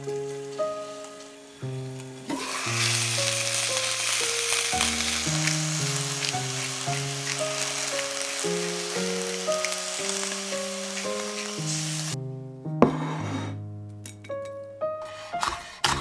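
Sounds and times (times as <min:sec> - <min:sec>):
vegetables sizzling in a pot: 0:00.0 - 0:12.2
background music: 0:00.0 - 0:16.0.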